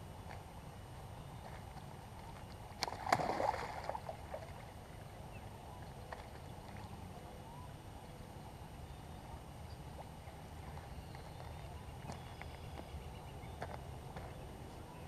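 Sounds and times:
fish splashing in shallow water: 1.5s - 5.2s.

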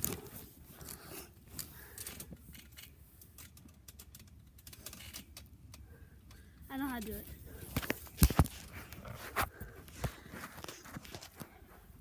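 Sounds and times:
clothes rustling: 0.0s - 3.7s, 6.8s - 12.0s.

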